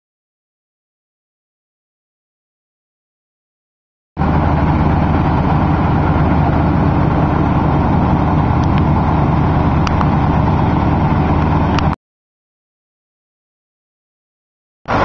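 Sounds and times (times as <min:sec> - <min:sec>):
machinery engine drone: 0:04.2 - 0:12.0.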